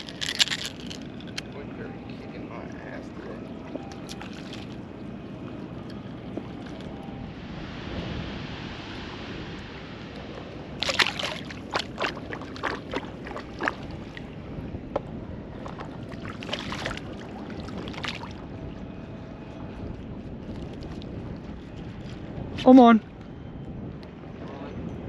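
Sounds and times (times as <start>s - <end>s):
moving water: 0.0s - 23.2s
wind: 0.0s - 25.0s
shallow water splashing: 2.6s - 14.4s, 15.5s - 18.6s.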